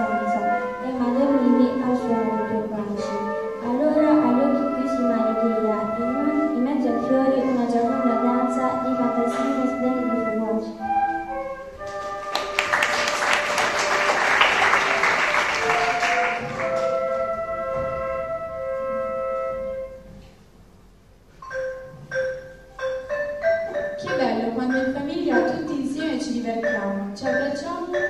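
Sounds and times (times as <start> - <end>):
instrumental ensemble playing: 0.0 - 20.5, 21.4 - 28.0
people clapping: 11.9 - 17.2.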